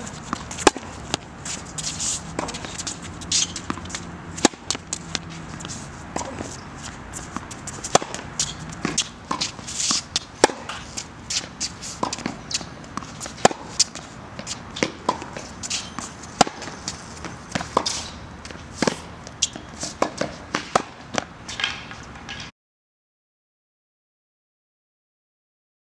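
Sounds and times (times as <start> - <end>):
ball bouncing on hard court: 0.0 - 18.0
shoes scuffing on court: 0.0 - 22.2
racket hitting tennis ball: 0.0 - 22.5.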